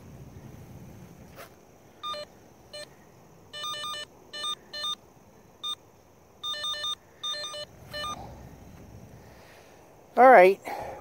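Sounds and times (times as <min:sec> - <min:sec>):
electronic detection beeps: 0:02.0 - 0:02.9, 0:03.6 - 0:05.0, 0:06.4 - 0:08.2.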